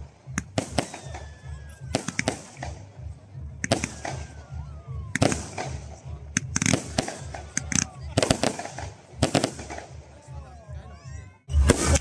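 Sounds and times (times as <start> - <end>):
fireworks bangs and crackling: 0.0 - 10.4, 11.5 - 12.0
low background rumble: 0.0 - 11.0.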